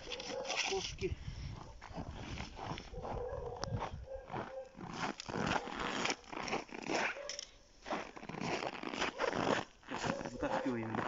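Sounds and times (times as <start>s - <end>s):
footsteps on packed snow: 1.5s - 7.2s, 7.8s - 11.0s.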